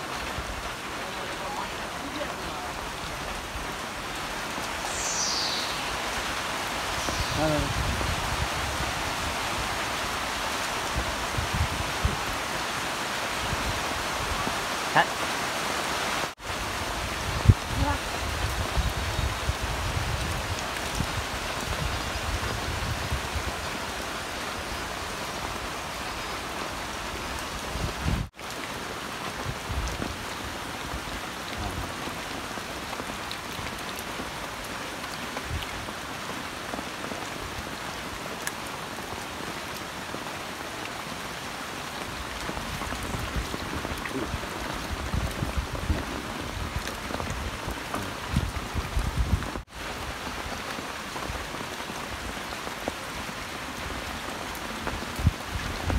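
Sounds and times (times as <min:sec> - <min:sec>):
rain falling on muddy water: 0:00.0 - 0:55.9.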